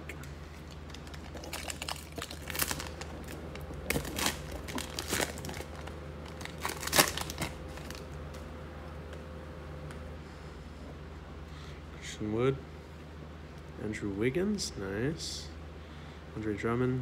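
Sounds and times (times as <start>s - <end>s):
plastic wrapper crinkling and tearing: 0.5s - 8.2s.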